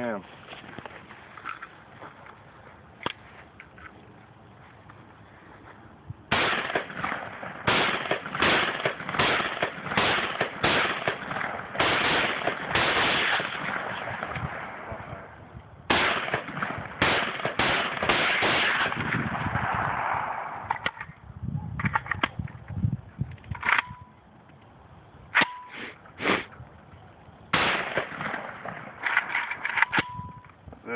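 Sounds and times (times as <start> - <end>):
rifle shots: 6.3 - 15.0, 15.9 - 21.0, 27.5 - 30.2.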